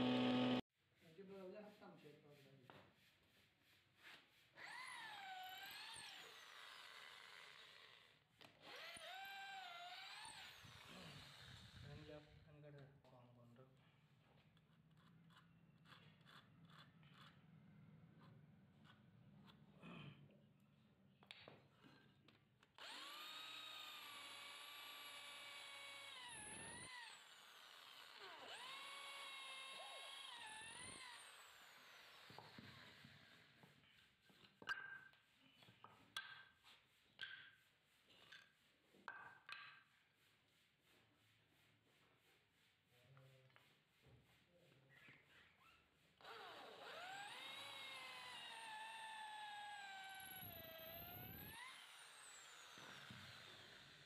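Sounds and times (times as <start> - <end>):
electric drill boring wood: 0.0 - 0.6, 4.6 - 12.1, 22.8 - 33.7, 46.2 - 54.0.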